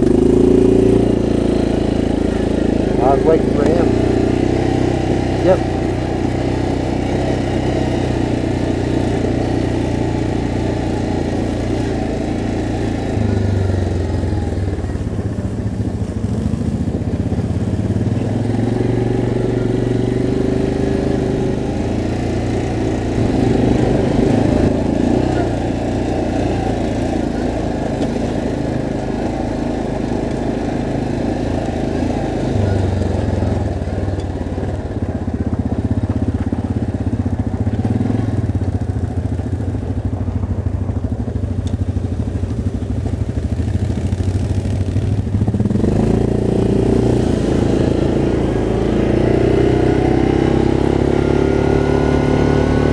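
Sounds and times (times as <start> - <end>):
atv engine revving: 0.0 - 52.9.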